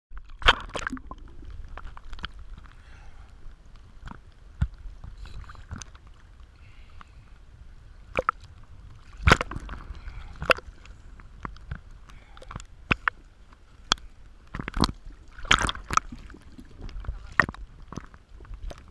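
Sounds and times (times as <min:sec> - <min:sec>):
water sloshing and gurgling: 0:00.1 - 0:18.9
sharp water slaps: 0:09.2 - 0:09.6, 0:14.7 - 0:16.1.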